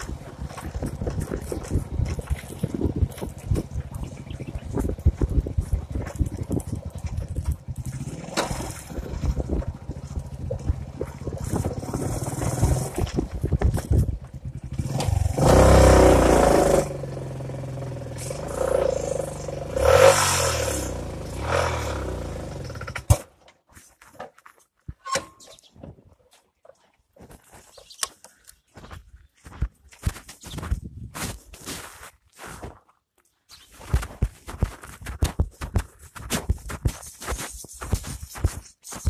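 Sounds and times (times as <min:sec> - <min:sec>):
wind rushing over microphone: 0:00.0 - 0:16.8
motorcycle engine running: 0:00.0 - 0:23.2.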